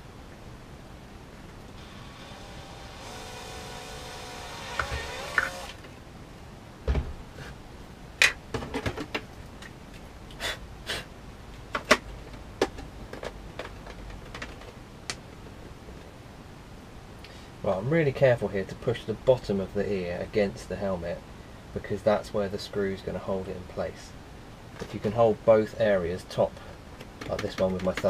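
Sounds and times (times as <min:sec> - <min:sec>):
cordless drill drilling plastic: 0:01.8 - 0:05.8
plastic parts clicking and knocking: 0:11.7 - 0:14.8, 0:27.0 - 0:28.0.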